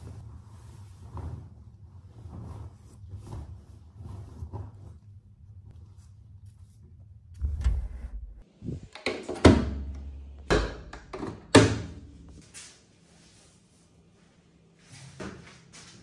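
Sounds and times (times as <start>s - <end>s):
fabric rustling: 0.0s - 6.7s
washing machine door thunks: 9.0s - 12.3s.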